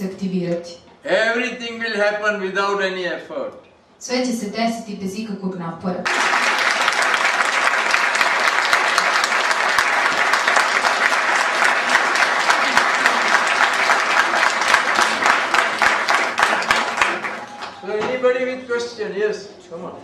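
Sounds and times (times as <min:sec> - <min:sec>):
audience applauding: 0:06.0 - 0:18.1.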